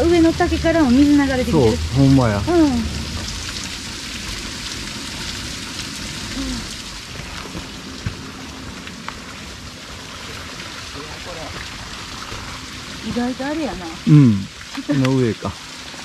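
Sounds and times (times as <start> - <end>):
waterfall and stream rushing: 14.9 - 16.0.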